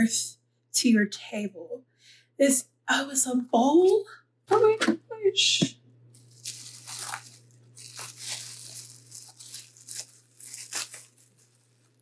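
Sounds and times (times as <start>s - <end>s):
bubble wrap crinkling: 6.2s - 12.0s.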